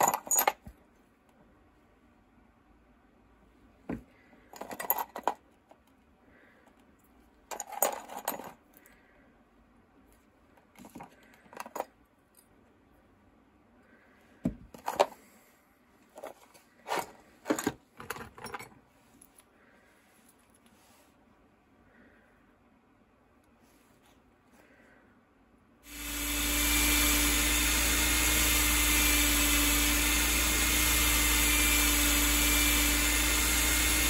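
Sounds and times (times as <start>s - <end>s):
metal parts clinking in plastic tray: 7.5s - 8.6s.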